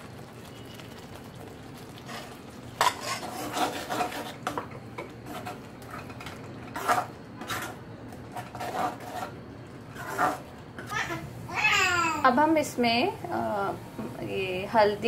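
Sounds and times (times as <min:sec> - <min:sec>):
metal ladle scraping a pan: 0:02.0 - 0:10.5.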